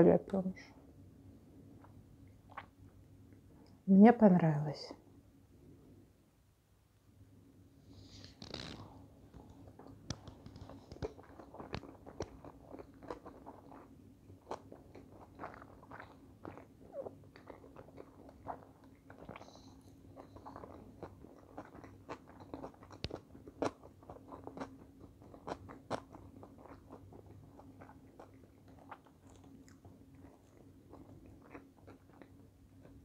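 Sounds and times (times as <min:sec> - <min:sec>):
person chewing food: 0:01.8 - 0:02.8, 0:08.2 - 0:33.0.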